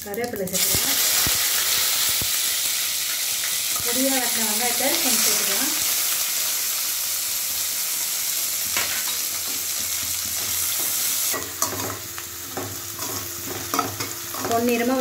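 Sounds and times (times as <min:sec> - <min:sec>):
onions sizzling in oil: 0:00.0 - 0:15.0.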